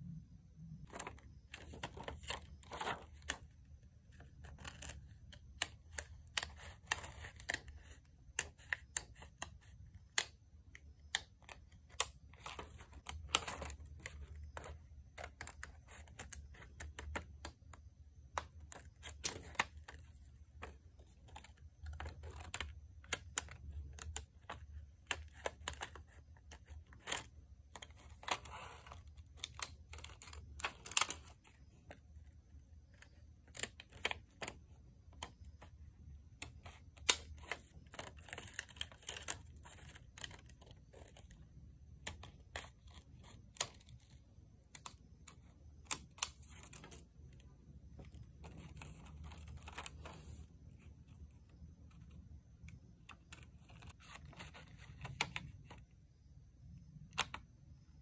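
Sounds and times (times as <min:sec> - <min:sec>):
faint low hum: 0:00.0 - 0:58.0
paper rustling: 0:00.8 - 0:03.4.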